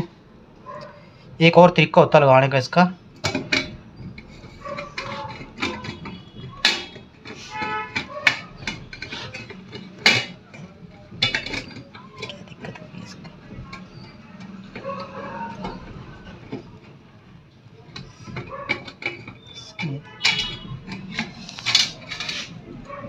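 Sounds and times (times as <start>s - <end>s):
metal roller clicking and knocking: 3.1s - 23.0s.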